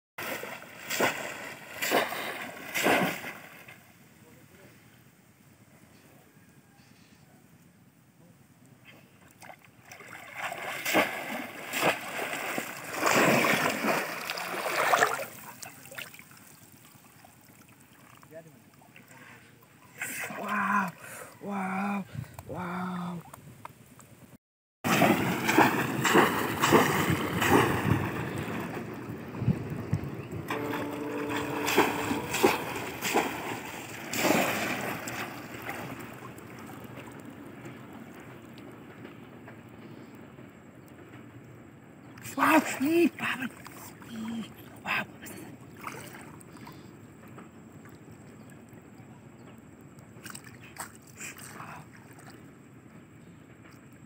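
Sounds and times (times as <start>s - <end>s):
fish trap splashing in water: 0.2s - 3.6s, 9.8s - 16.4s, 24.9s - 28.8s, 30.5s - 37.2s
lapping water: 0.2s - 3.8s, 8.7s - 23.4s, 24.9s - 38.7s, 42.2s - 49.1s, 50.1s - 52.5s.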